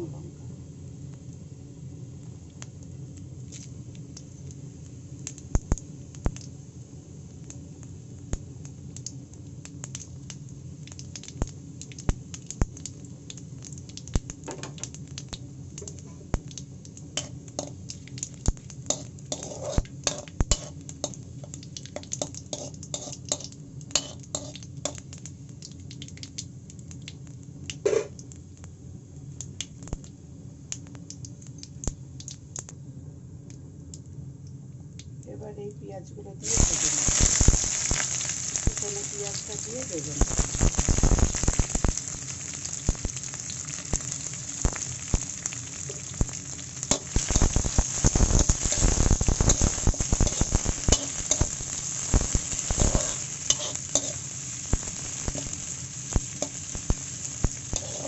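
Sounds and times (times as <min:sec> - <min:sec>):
steady low hum: 0:00.0 - 0:58.0
spices crackling in hot oil: 0:00.1 - 0:32.8, 0:36.4 - 0:58.0
metal spatula scraping pan: 0:18.9 - 0:20.8, 0:22.6 - 0:24.6, 0:52.8 - 0:54.2, 0:57.7 - 0:58.0.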